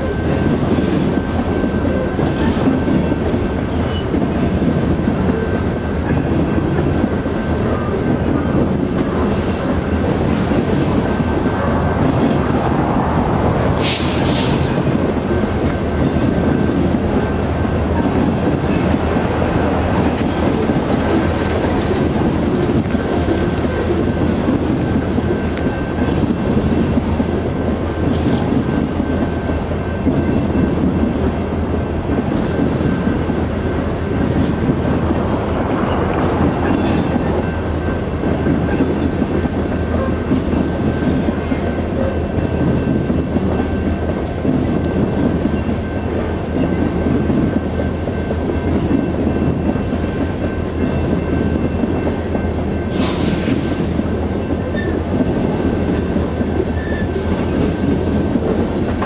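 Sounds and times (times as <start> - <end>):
train cars rumbling past: 0.0 - 59.0
sharp wheel squeal: 56.7 - 57.6.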